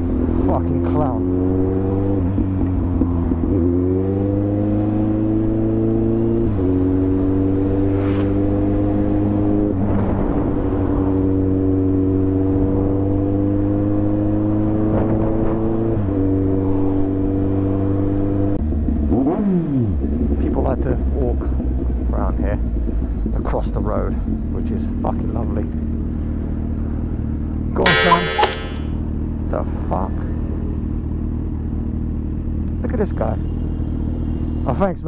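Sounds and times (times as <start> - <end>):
motorcycle engine accelerating: 0.0 - 9.7
road and wind noise: 0.0 - 35.0.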